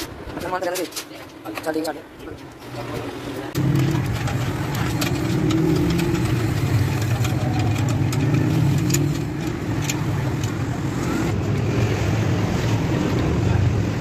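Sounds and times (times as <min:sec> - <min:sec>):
engine droning: 0:03.4 - 0:14.0
spanner clicking on nut: 0:03.6 - 0:10.8.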